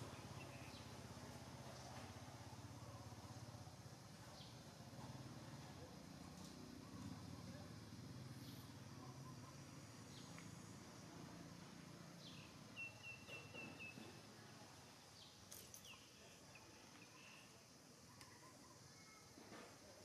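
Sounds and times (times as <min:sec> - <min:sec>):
faint bird chirps: 0:12.2 - 0:20.0.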